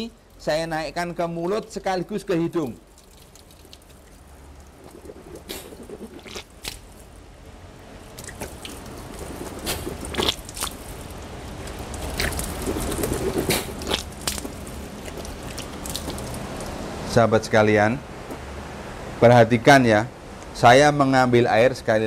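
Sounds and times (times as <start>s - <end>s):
tap water trickling and splashing: 1.4s - 7.2s, 8.0s - 16.8s
mouth rinsing slurps: 2.6s - 7.2s, 8.0s - 16.8s
water sniffed and blown from nose: 2.9s - 7.2s, 8.0s - 16.8s.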